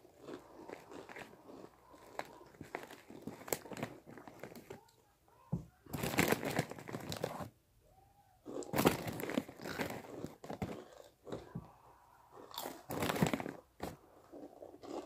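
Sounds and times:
chips being chewed: 0:00.0 - 0:04.7, 0:08.5 - 0:11.7, 0:12.3 - 0:15.0
snack bag crinkling: 0:00.0 - 0:04.9, 0:05.9 - 0:07.5, 0:08.5 - 0:11.6, 0:12.4 - 0:15.0.

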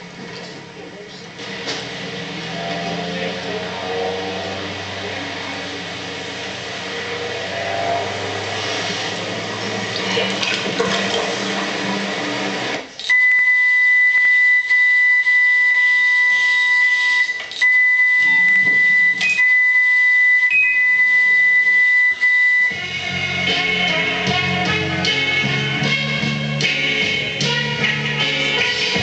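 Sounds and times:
music: 0:00.0 - 0:12.9, 0:20.5 - 0:29.0
high electronic tone: 0:01.5 - 0:24.2.

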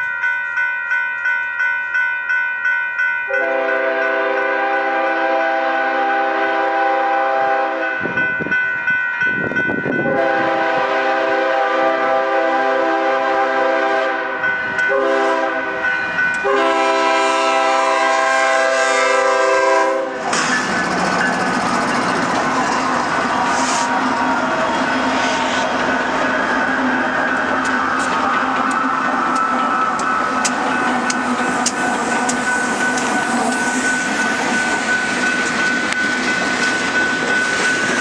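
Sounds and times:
bell dinging: 0:00.0 - 0:04.1, 0:07.8 - 0:10.2, 0:20.4 - 0:38.0
locomotive air horn: 0:03.3 - 0:08.0, 0:10.0 - 0:20.5
locomotive engine and wheel noise: 0:20.1 - 0:38.0.

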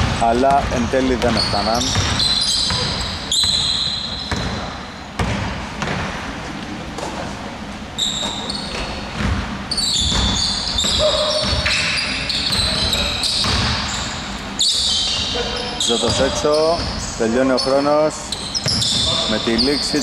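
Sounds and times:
basketball bouncing on hardwood: 0:00.0 - 0:03.7, 0:04.3 - 0:04.6, 0:05.2 - 0:06.1, 0:08.8 - 0:11.7, 0:13.4 - 0:13.8
sneaker squeaks: 0:00.0 - 0:06.0, 0:08.0 - 0:20.0.

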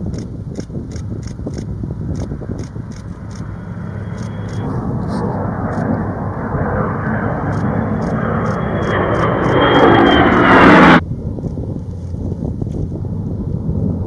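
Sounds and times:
aircraft engines flying past: 0:00.0 - 0:14.0
wind-like background: 0:00.0 - 0:14.0
faint high whine: 0:02.9 - 0:11.0.

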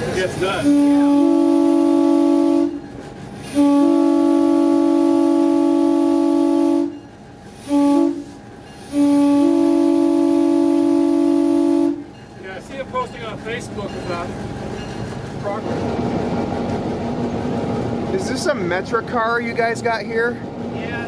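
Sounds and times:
locomotive air horn blasts: 0:00.6 - 0:07.0, 0:07.6 - 0:12.1.

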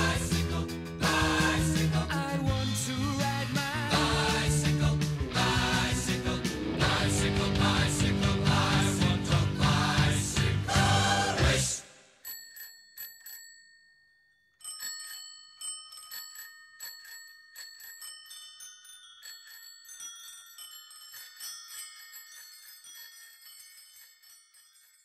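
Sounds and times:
tinkling bell-like melody: 0:00.0 - 0:10.1, 0:10.7 - 0:25.0.

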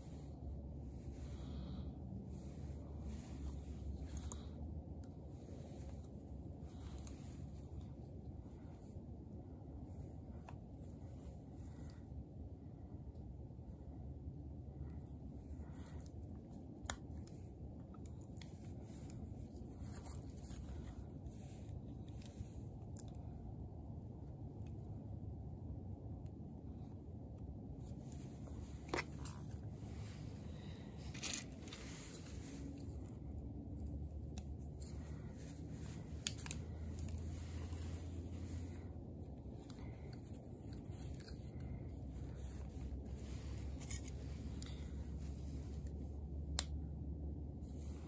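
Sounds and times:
low background rumble: 0:00.0 - 0:48.0
connector clicks and handling: 0:30.9 - 0:46.8.

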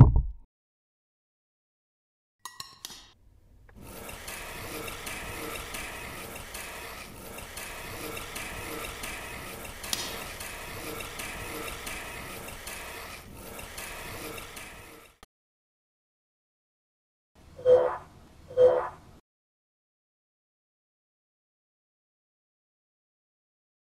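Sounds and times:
ratcheting grinding gears: 0:03.8 - 0:15.1.

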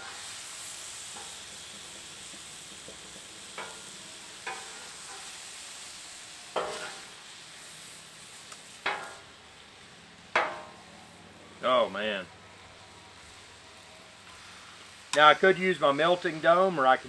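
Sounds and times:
meat sizzling on a griddle: 0:00.0 - 0:17.0
metal spatulas scraping a griddle: 0:03.6 - 0:05.4, 0:06.5 - 0:07.2, 0:08.8 - 0:09.2.

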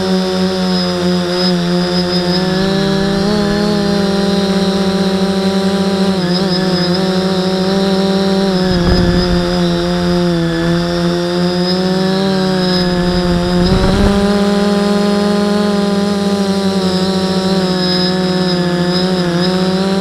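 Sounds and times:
drone motors buzzing: 0:00.0 - 0:16.6
wind rumble on microphone: 0:01.2 - 0:16.4.

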